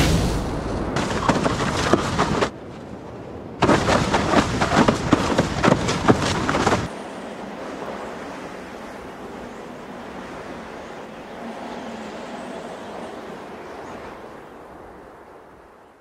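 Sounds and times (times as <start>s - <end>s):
surf rushing: 0.0s - 12.3s.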